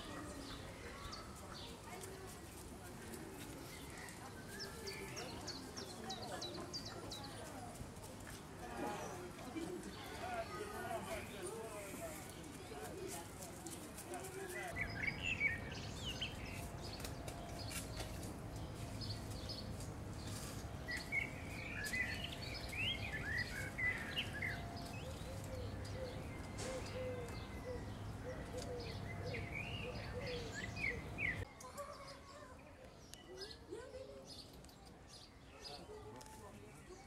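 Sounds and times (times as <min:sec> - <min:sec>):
small birds chirping: 0:09.0 - 0:37.0.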